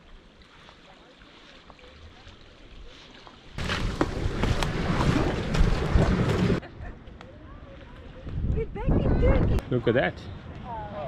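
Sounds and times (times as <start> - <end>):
water at the shore: 0.0 - 11.0
wind buffeting microphone: 3.6 - 9.7.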